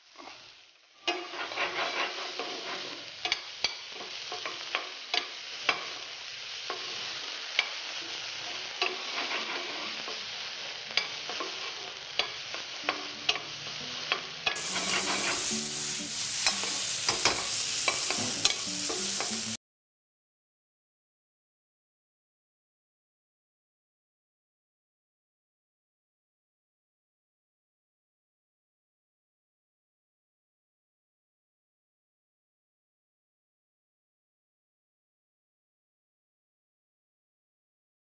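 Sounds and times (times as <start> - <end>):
food sizzling in a pan: 0.0 - 19.6
spatula scraping and tapping pan: 1.0 - 10.3, 10.9 - 19.6.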